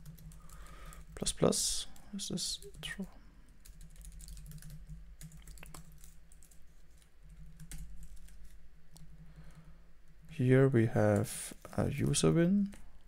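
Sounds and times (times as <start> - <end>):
computer keyboard typing: 0.0 - 1.3, 2.6 - 9.2.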